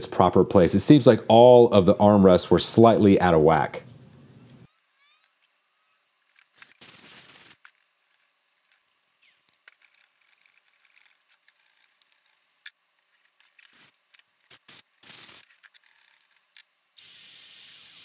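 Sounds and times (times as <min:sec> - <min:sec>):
faint handling clicks and scrapes: 0:06.2 - 0:16.7.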